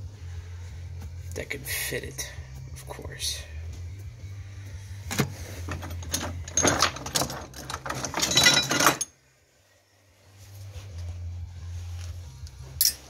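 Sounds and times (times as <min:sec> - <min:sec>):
metal tools clinking and rattling: 0:05.6 - 0:09.1, 0:12.8 - 0:13.0.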